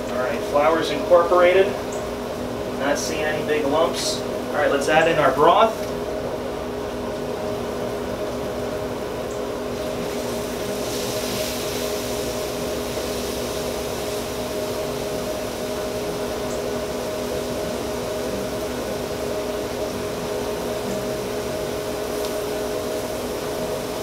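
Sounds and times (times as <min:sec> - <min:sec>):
steady mechanical hum: 0:00.0 - 0:24.0.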